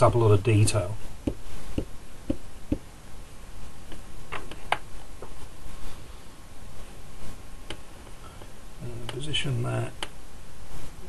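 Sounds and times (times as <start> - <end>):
ink pad tapping on stamp: 1.2 - 2.9.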